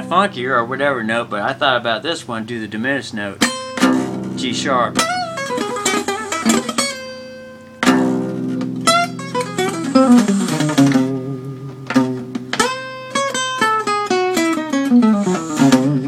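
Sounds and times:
acoustic guitar playing: 0.0 - 16.0.

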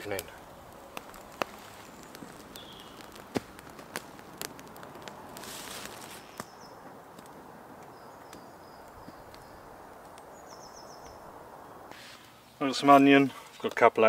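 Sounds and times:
campfire crackling and popping: 0.0 - 14.0
small bird chirping: 1.6 - 3.2, 6.1 - 6.8, 7.9 - 11.3.

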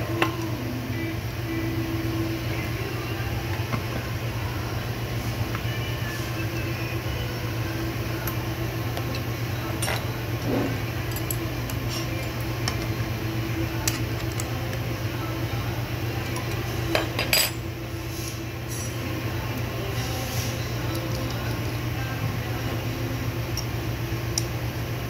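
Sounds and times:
steady low hum: 0.0 - 25.0
metal clicks and clinks: 11.1 - 12.9.

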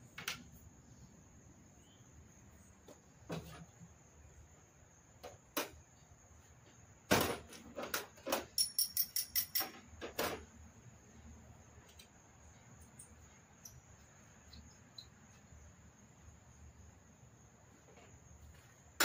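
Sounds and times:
hand tools knocking and clicking: 8.3 - 10.2
ringing metallic clicks: 8.5 - 9.7.

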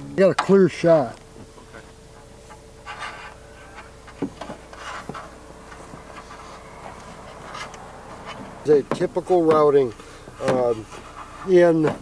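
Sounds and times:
faint steady hum: 0.0 - 12.0
cable rustling and scraping: 2.5 - 8.6.

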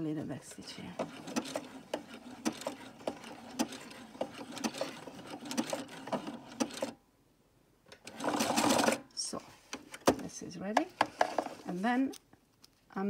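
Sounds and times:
sewing machine stitching: 1.0 - 7.0, 8.0 - 9.0.

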